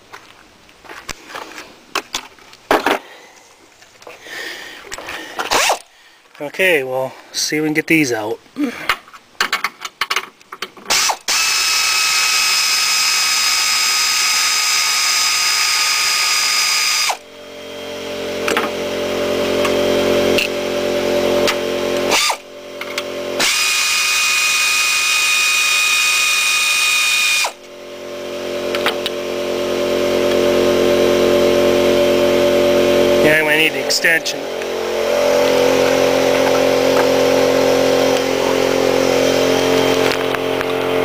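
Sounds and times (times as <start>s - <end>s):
power ratchet whining: 5.3s - 5.9s, 10.9s - 41.0s
low mechanical hum: 17.1s - 26.3s, 27.1s - 41.0s.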